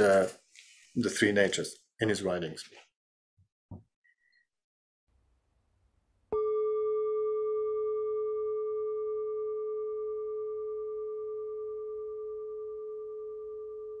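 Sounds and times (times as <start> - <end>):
bell-like tone ringing: 6.4 - 14.0.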